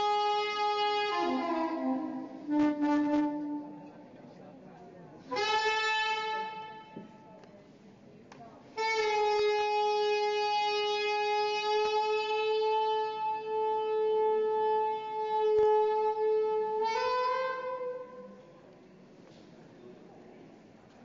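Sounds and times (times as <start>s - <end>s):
wind instrument long held note: 0.0s - 4.1s, 5.2s - 7.3s, 8.8s - 18.5s.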